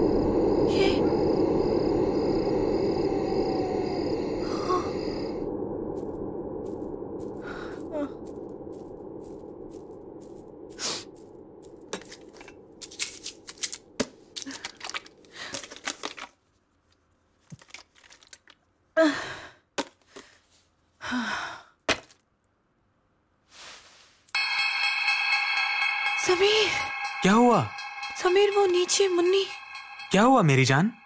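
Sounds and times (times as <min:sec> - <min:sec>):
low steady drone: 0:00.0 - 0:13.6
plastic bottle crinkling: 0:12.8 - 0:16.5, 0:17.4 - 0:18.6.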